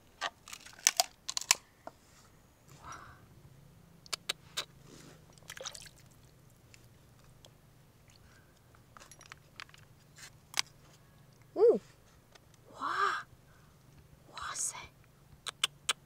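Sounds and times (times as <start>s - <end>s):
small clicks and scrapes: 0.2s - 2.0s, 8.7s - 11.0s.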